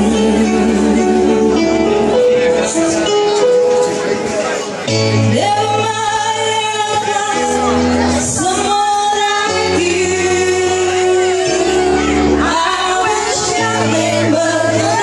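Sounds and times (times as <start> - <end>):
woman singing: 0.0 - 2.0, 5.3 - 15.0
bass line: 0.0 - 4.1
live band music: 0.0 - 15.0.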